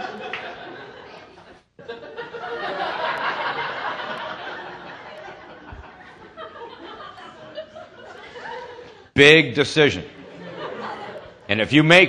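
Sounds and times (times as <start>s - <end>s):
audience laughing: 0.0s - 9.1s, 9.8s - 11.7s.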